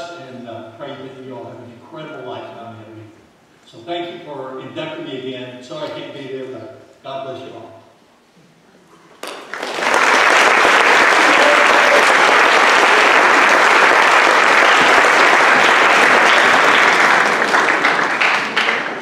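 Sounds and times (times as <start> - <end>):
large audience applauding: 9.2 - 19.0.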